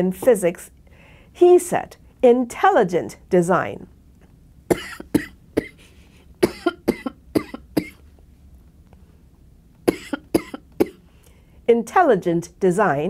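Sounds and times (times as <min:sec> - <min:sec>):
woman clearing throat: 0:04.7 - 0:05.8, 0:06.4 - 0:08.0, 0:09.9 - 0:11.0
woman coughing: 0:04.7 - 0:05.8, 0:06.4 - 0:08.0, 0:09.9 - 0:11.0.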